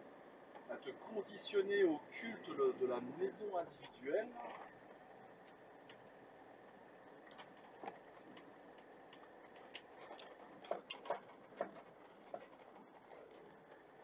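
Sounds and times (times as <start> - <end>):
road noise in vehicle cab: 0.0 - 14.0
small clicks and rattles: 3.7 - 14.0.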